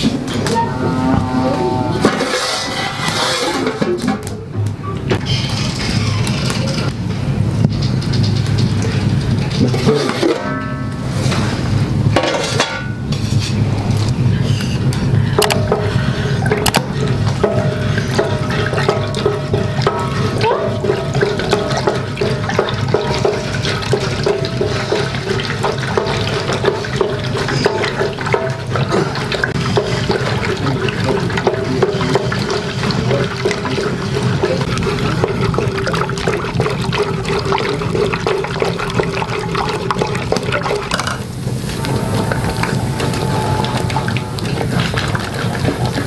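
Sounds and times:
stick scraping pot: 0.1s - 4.2s, 9.6s - 11.6s
liquid sloshing in pot: 15.5s - 46.0s.

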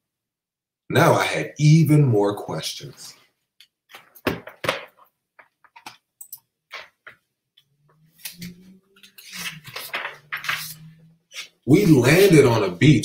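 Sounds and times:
paper rustling: 8.1s - 12.6s.

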